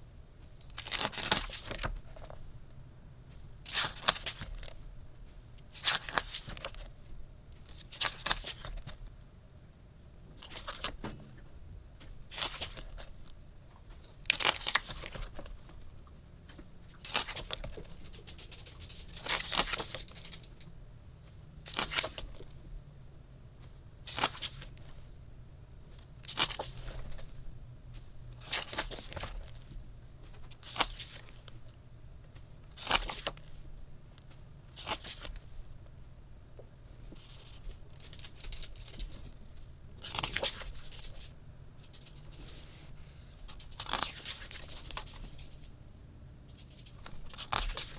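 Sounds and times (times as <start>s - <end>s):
book pages turning: 0.7s - 2.4s, 3.7s - 4.8s, 5.7s - 6.9s, 7.6s - 9.0s, 10.4s - 11.0s, 12.3s - 13.2s, 14.0s - 15.6s, 16.9s - 20.5s, 21.7s - 22.5s, 24.0s - 25.0s, 26.0s - 27.3s, 28.4s - 31.6s, 32.7s - 33.5s, 34.7s - 35.4s, 37.1s - 39.2s, 40.0s - 45.7s, 46.5s - 47.9s.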